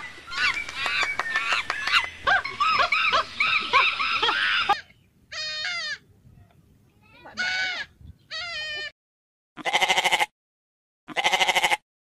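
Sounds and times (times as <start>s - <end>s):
monkeys squeaking and chirping: 0.4s - 6.0s.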